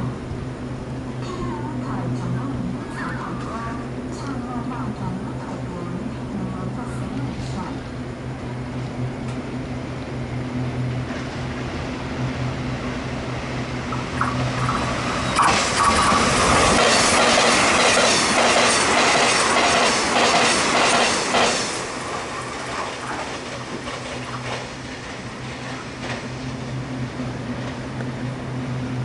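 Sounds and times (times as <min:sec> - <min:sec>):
steady low hum: 0:00.0 - 0:18.4
electric train passing: 0:00.0 - 0:29.0.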